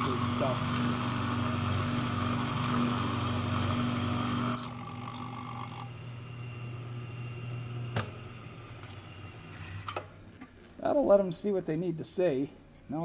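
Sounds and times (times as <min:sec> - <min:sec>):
milling machine cutting metal: 0:00.0 - 0:06.0
spindle humming: 0:00.0 - 0:10.4.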